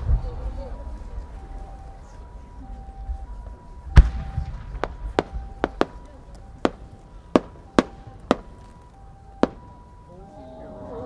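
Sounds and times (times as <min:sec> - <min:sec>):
firework cracks: 0:04.0 - 0:09.8.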